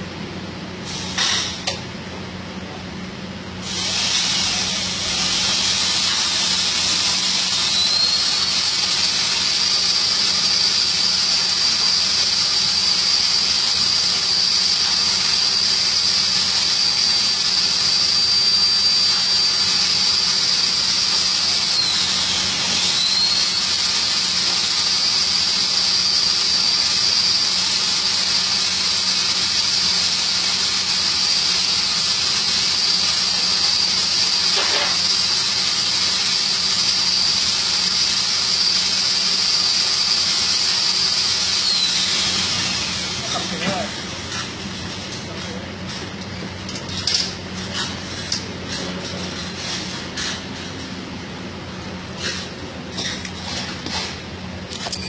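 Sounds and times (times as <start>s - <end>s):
gas hissing with high whistle: 0.8s - 1.8s, 3.6s - 45.0s.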